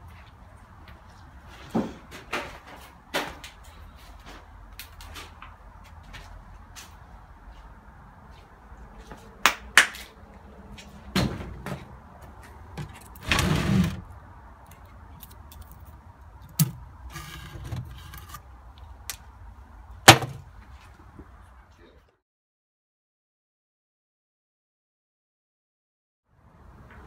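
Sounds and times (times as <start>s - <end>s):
drawer scraping slide: 12.8s - 14.1s, 16.6s - 18.4s.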